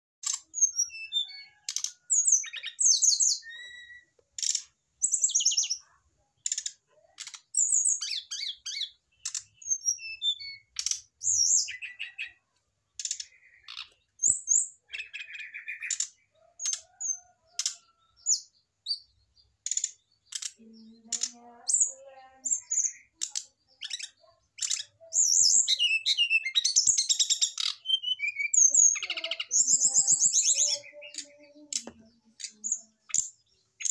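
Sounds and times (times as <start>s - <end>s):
bird chirping: 0.2s - 33.9s.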